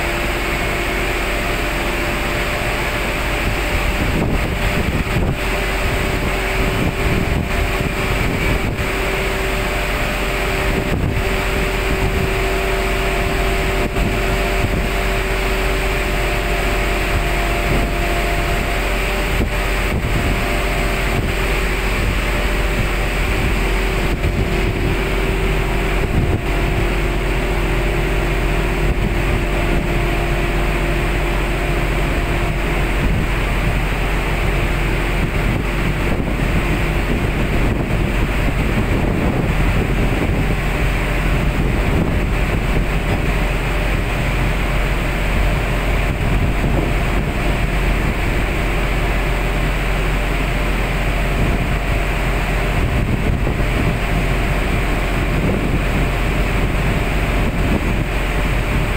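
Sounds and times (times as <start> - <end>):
boat engine drone: 0.0 - 58.9
sea wash: 0.0 - 58.9
wind buffeting microphone: 2.2 - 58.9.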